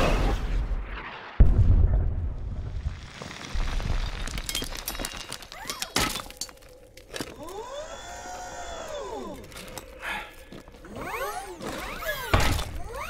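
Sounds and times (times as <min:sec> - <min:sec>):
debris clattering and breaking: 0:03.0 - 0:07.4.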